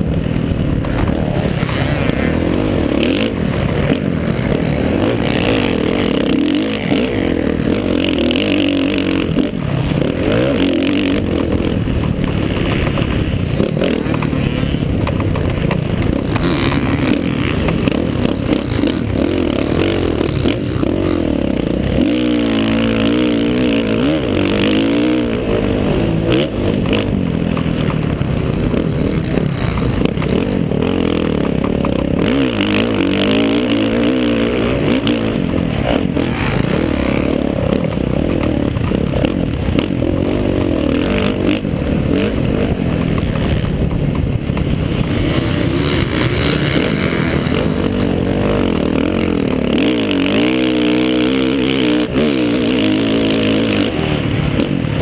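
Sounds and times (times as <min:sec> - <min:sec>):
motorbike engine revving: 0:00.0 - 0:55.0
steady rush of noise: 0:00.0 - 0:55.0.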